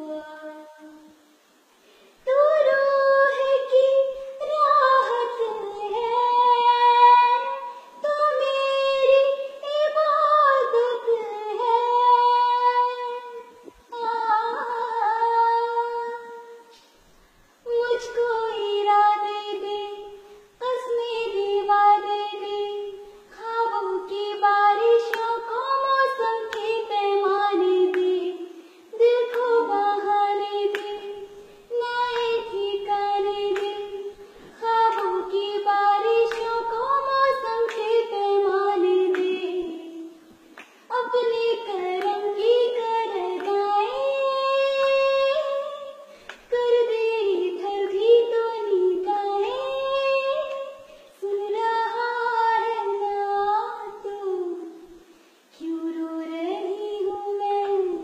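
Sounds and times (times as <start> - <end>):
girl singing: 0.0 - 1.3, 2.2 - 16.9, 17.6 - 58.0
girl breathing: 34.2 - 34.6, 46.1 - 46.5.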